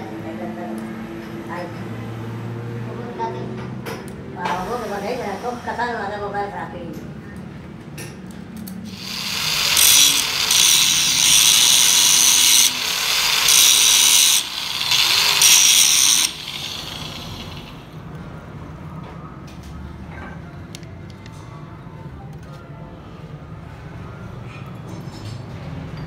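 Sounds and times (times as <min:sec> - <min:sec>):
grinder disc cutting steel: 0:08.9 - 0:17.9.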